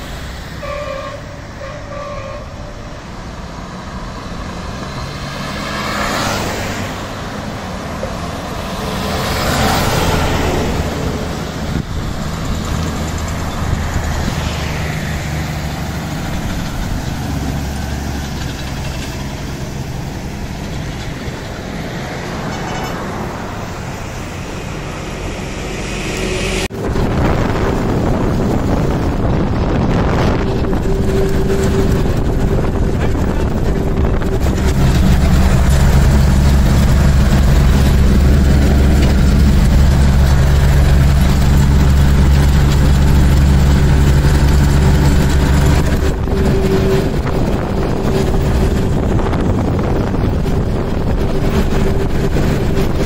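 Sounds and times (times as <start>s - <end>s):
heavy trucks driving past: 0.0s - 53.0s
road and wind noise inside vehicle: 0.0s - 53.0s
truck horn: 0.5s - 3.2s, 22.3s - 23.2s, 29.1s - 42.3s, 43.1s - 52.8s.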